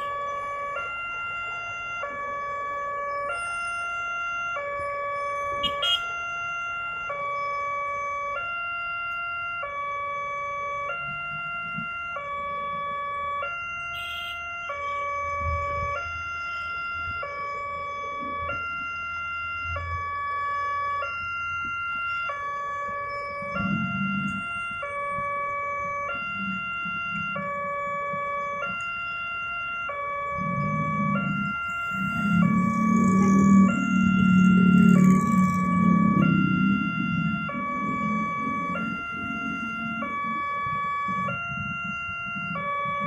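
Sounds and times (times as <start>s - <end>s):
level crossing alarm chime: 21.0s - 43.0s.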